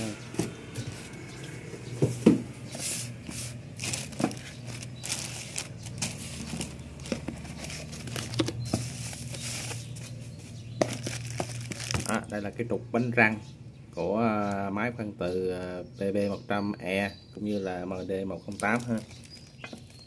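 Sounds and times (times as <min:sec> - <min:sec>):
low steady hum: 0:00.0 - 0:16.0
plastic wrapping crinkling: 0:03.3 - 0:10.1, 0:10.8 - 0:12.3, 0:18.5 - 0:20.0
cardboard box being opened: 0:10.8 - 0:12.1.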